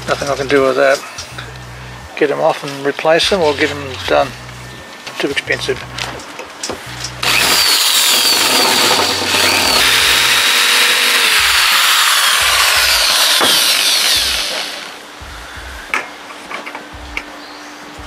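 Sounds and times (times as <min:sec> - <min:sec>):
electric drill whining: 0:07.2 - 0:15.0.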